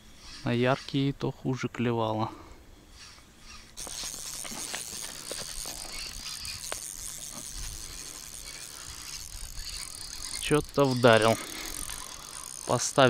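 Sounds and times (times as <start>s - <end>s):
fishing reel whirring: 2.9s - 13.0s.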